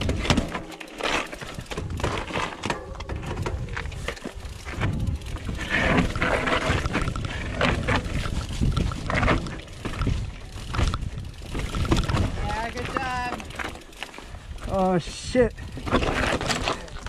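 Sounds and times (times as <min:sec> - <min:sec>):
mountain bike rattling: 0:00.0 - 0:17.0
wind on microphone: 0:01.5 - 0:13.4.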